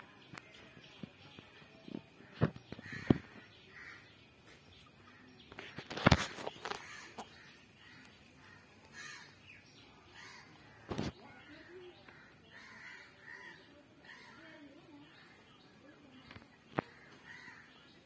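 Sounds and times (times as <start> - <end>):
crows cawing: 2.2 - 4.2, 6.4 - 9.4, 10.1 - 10.9, 12.1 - 14.5, 16.9 - 17.8.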